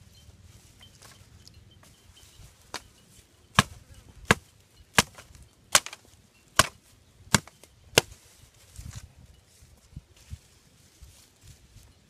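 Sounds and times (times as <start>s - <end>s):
knife chopping wooden stick: 5.0s - 6.0s, 6.6s - 8.2s.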